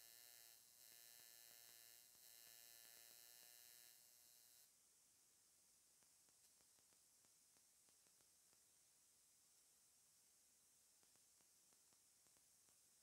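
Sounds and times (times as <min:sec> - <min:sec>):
faint electrical buzz: 0:00.0 - 0:13.0
faint ticks: 0:06.0 - 0:08.7, 0:11.0 - 0:13.0.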